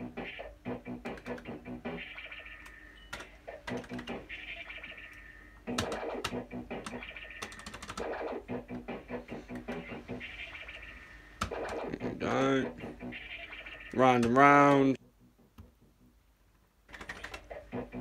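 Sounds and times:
sharp clicks: 0:01.0 - 0:01.6.

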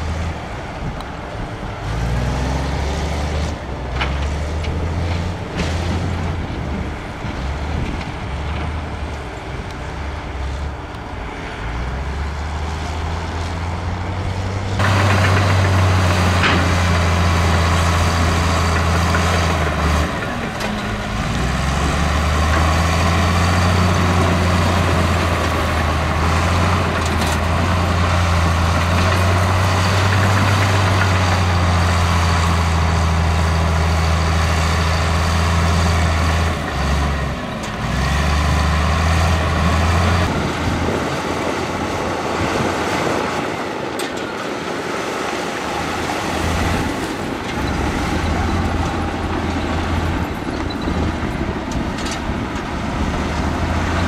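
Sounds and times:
heavy diesel engine running: 0:00.0 - 0:54.0.

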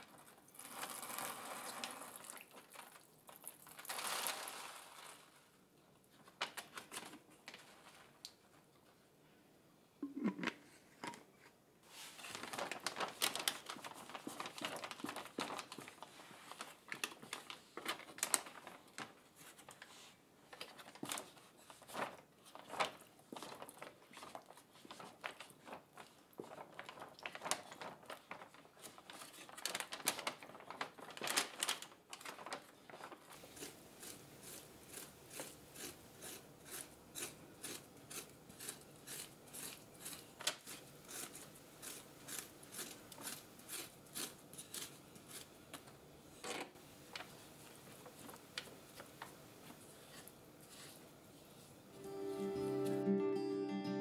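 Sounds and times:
plastic bag crinkling: 0:00.0 - 0:05.6, 0:11.9 - 0:19.9, 0:20.6 - 0:34.2
coco coir scraped by hand: 0:33.5 - 0:45.5.

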